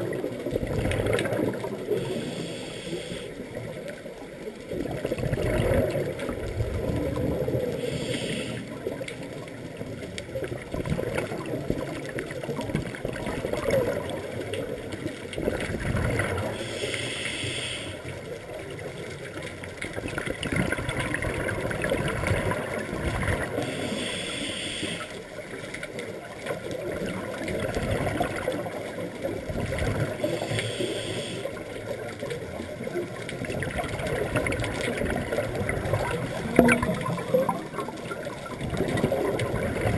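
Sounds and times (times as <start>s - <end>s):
bubbling gurgle of exhaled air: 0.0s - 39.9s
hiss of inhalation: 2.0s - 3.4s, 7.8s - 8.7s, 16.6s - 18.1s, 23.6s - 25.2s, 30.2s - 31.6s.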